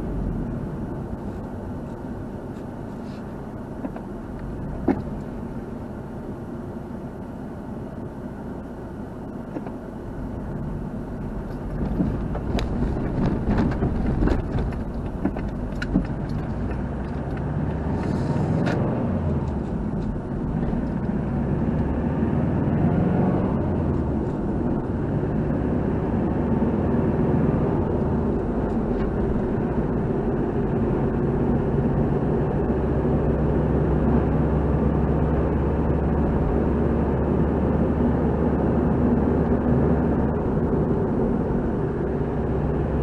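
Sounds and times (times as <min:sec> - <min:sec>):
car engine rumble: 0:00.0 - 0:43.0
road and tyre noise: 0:00.0 - 0:43.0
truck passing: 0:16.4 - 0:43.0.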